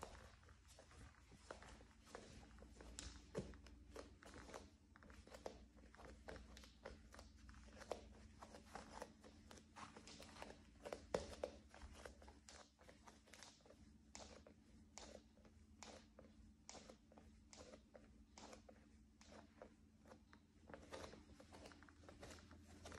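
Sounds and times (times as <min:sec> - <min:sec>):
wooden floor creaking under footsteps: 0:00.0 - 0:13.5, 0:20.6 - 0:22.9.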